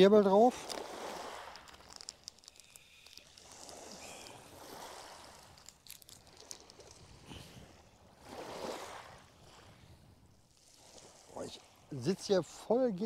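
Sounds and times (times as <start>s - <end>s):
river water lapping against bank: 0.0s - 12.8s
small clicks: 1.5s - 4.3s, 5.4s - 7.0s.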